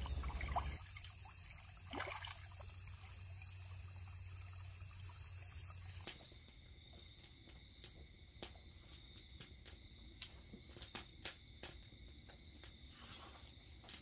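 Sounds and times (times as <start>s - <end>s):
creek water splashing: 0.0s - 5.8s
insect chorus: 0.0s - 14.0s.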